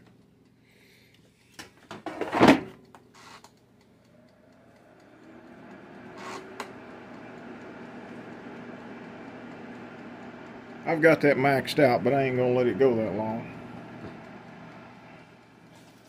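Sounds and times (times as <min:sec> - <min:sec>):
fan whirring: 0:01.6 - 0:16.0
timer dial click: 0:02.8 - 0:15.6.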